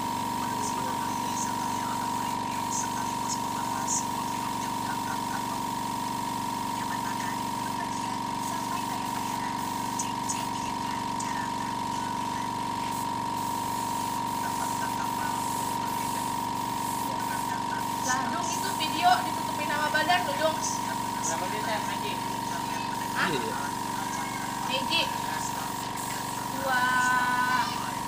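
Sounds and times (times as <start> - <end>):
high-pitched whine: 0.0 - 28.0
steady machine drone: 0.0 - 28.0.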